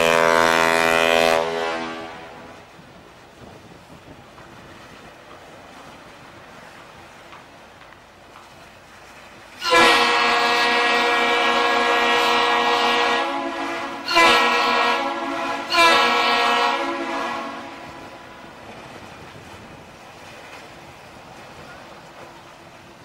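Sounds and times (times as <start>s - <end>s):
deep ship horn blasts: 0.0s - 2.7s, 9.6s - 18.9s.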